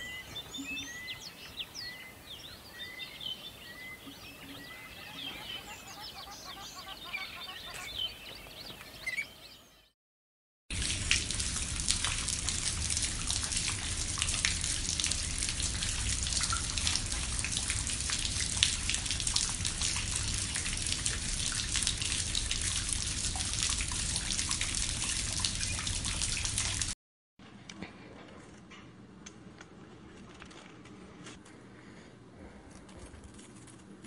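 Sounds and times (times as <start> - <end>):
rain falling on a pond: 10.7 - 27.0.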